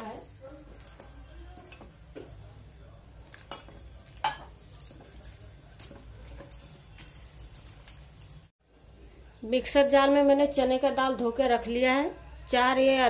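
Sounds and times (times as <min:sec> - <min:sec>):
batter squishing: 0:00.0 - 0:08.5
clinks against metal bowl: 0:03.3 - 0:07.7.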